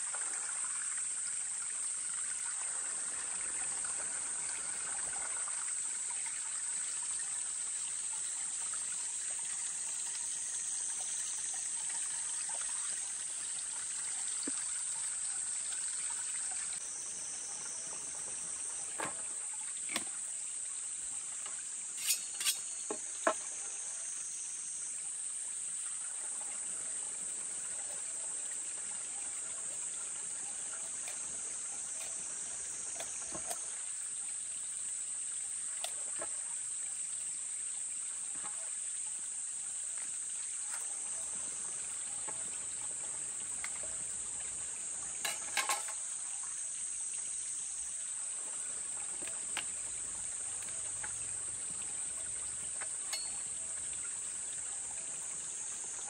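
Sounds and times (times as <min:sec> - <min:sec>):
high-pitched insect chorus: 0:00.7 - 0:14.4, 0:15.0 - 0:19.4, 0:21.8 - 0:26.0.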